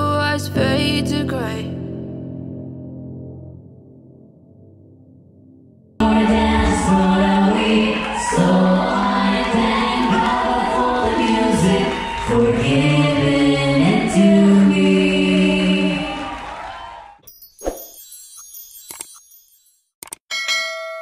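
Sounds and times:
backing music: 0:06.0 - 0:16.2
vocal ensemble singing chords: 0:06.0 - 0:16.7.

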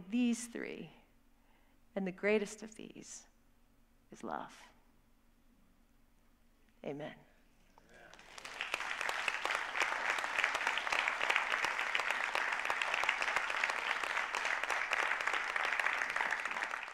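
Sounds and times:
congregation applauding: 0:07.9 - 0:16.9.

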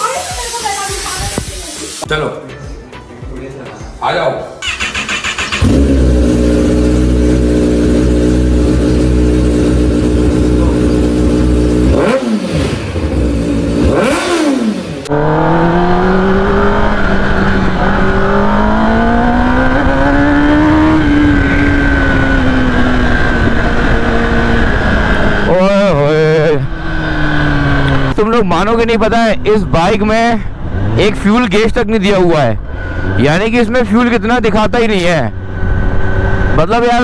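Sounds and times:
motorcycle engine idling: 0:04.6 - 0:11.9
engine revving: 0:04.6 - 0:37.0
motorcycle accelerating: 0:04.6 - 0:37.0.

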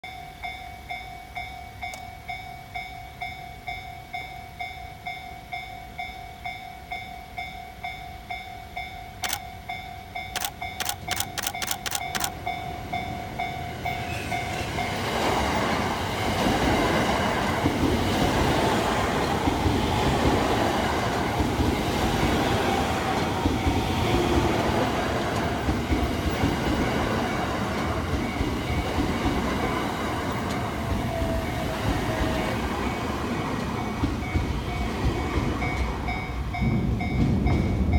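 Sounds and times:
level-crossing bell ringing: 0:00.0 - 0:15.2
electric train running noise: 0:00.1 - 0:37.9
sharp clicks: 0:09.2 - 0:09.4, 0:10.3 - 0:12.4
train wheels clattering over rails: 0:13.8 - 0:37.9.

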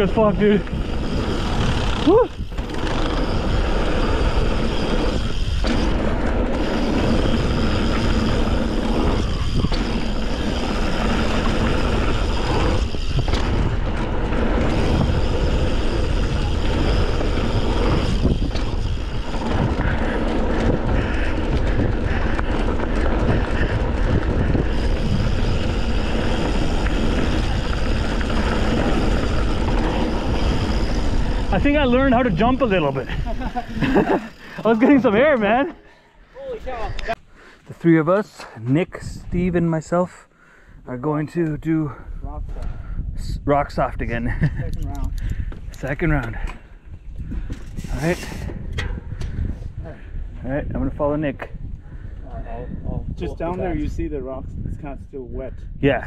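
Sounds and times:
wind buffeting microphone: 0:00.0 - 0:35.7, 0:38.8 - 0:39.7, 0:40.6 - 0:56.0.

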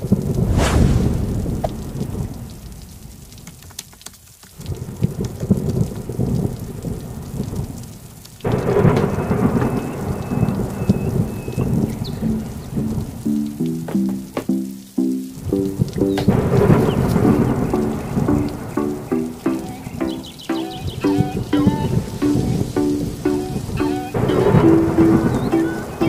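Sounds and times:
thunder rumbling: 0:00.0 - 0:03.6, 0:08.4 - 0:13.6, 0:15.4 - 0:26.0
rain: 0:00.0 - 0:26.0.

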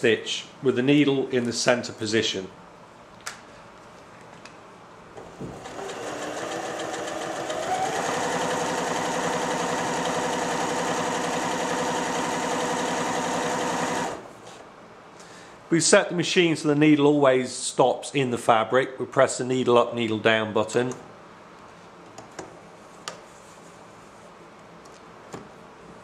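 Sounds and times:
electric sewing machine sewing: 0:05.2 - 0:14.5.

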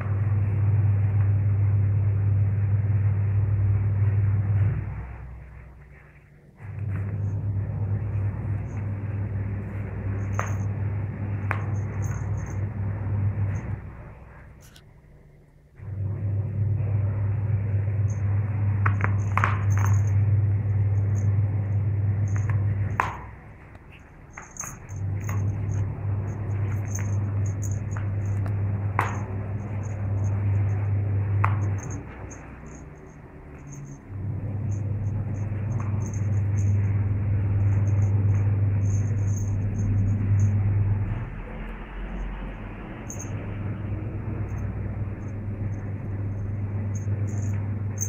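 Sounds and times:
steady low hum: 0:00.0 - 0:48.0
steady low rumble: 0:00.0 - 0:48.0
collar charm clicking and jingling: 0:10.1 - 0:10.8, 0:11.5 - 0:12.7, 0:18.9 - 0:20.2, 0:23.9 - 0:30.8, 0:31.6 - 0:34.1, 0:34.7 - 0:36.9, 0:37.6 - 0:40.6, 0:42.1 - 0:43.6, 0:44.3 - 0:48.0.

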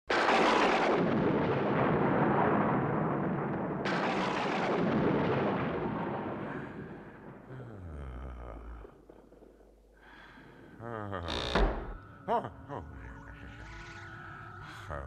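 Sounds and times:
sharp thunder crack: 0:00.1 - 0:07.6
thunder rumbling: 0:00.1 - 0:10.8.

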